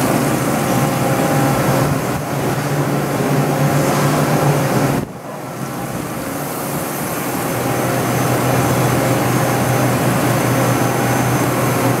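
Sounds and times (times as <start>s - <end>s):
shop machinery humming: 0.0s - 5.4s.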